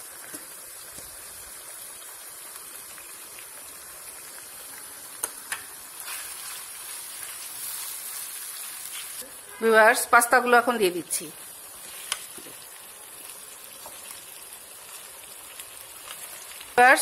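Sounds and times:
meat sauce sizzling in a pan: 0:00.0 - 0:17.0
spatula stirring in a pan: 0:06.0 - 0:09.4.

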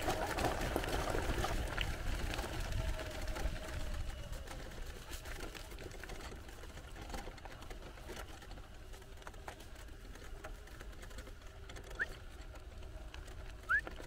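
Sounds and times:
tyres crunching over ground: 0:00.0 - 0:14.0
wheelchair rolling rumble: 0:00.0 - 0:14.0.

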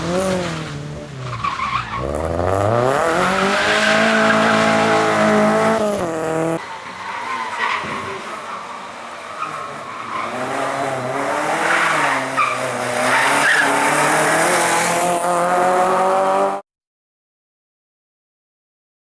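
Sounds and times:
rally car engine revving: 0:00.0 - 0:06.6, 0:07.3 - 0:16.6.

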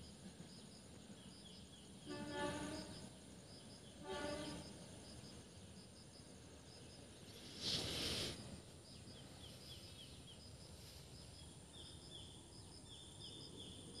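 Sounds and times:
insect drone: 0:00.0 - 0:14.0
brief rush of noise: 0:07.4 - 0:08.4.

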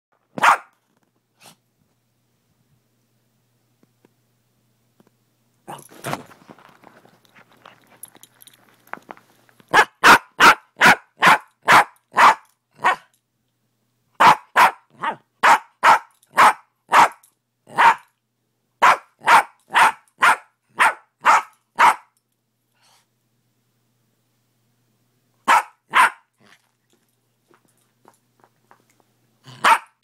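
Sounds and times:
small dog barking: 0:00.4 - 0:00.7, 0:09.7 - 0:13.1, 0:14.2 - 0:18.1, 0:18.8 - 0:22.2, 0:25.4 - 0:26.3, 0:29.5 - 0:30.0.

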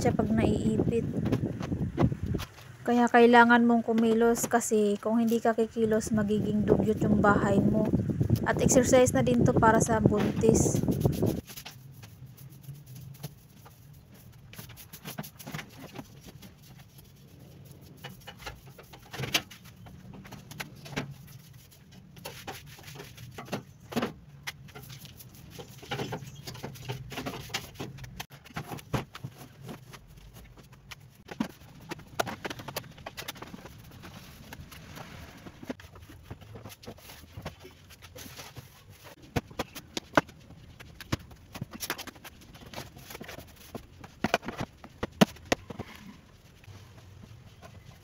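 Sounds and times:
broom sweeping: 0:10.4 - 0:18.9.

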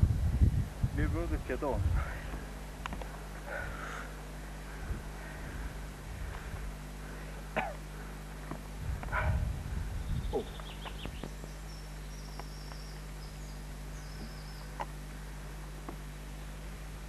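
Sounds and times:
low rumble: 0:00.0 - 0:02.5, 0:08.8 - 0:11.1
electrical hum: 0:00.0 - 0:17.0
high bird chirps: 0:10.0 - 0:14.8.

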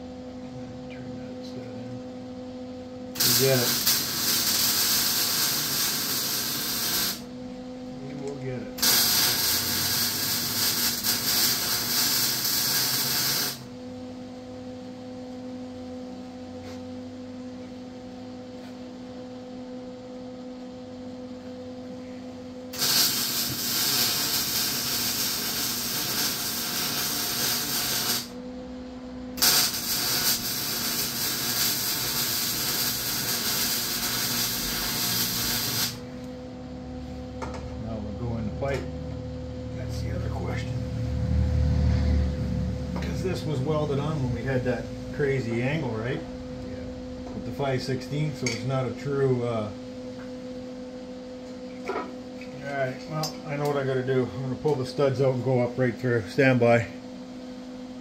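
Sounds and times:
loud steady hiss: 0:03.2 - 0:07.2, 0:08.8 - 0:13.7, 0:22.7 - 0:28.3, 0:29.4 - 0:36.0
low hum: 0:21.8 - 0:50.0.

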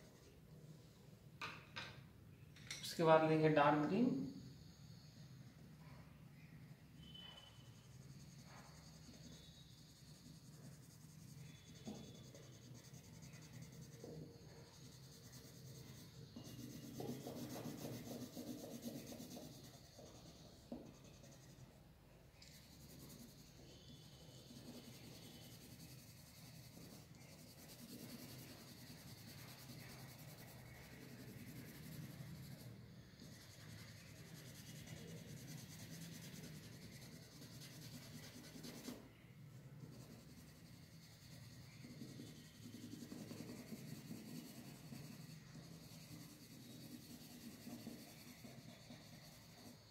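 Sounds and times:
pencil scratching on paper: 0:03.1 - 0:21.8, 0:22.4 - 0:49.9.

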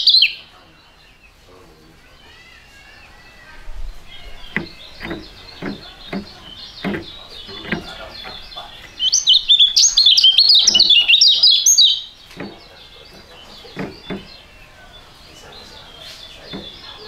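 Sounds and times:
songbird chirping: 0:00.0 - 0:17.0
soft thumps: 0:03.6 - 0:11.2, 0:12.1 - 0:17.0.

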